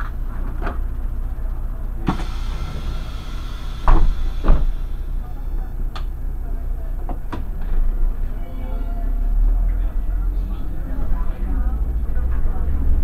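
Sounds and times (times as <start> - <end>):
bus engine and road rumble: 0.0 - 13.0
heavy thumps: 2.1 - 5.3.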